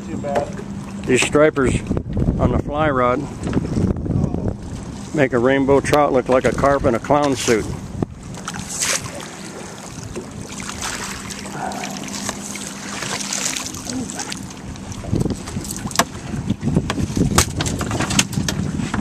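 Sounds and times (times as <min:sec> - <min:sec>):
boat motor humming: 0:00.0 - 0:19.0
fish splashing at surface: 0:08.4 - 0:14.6.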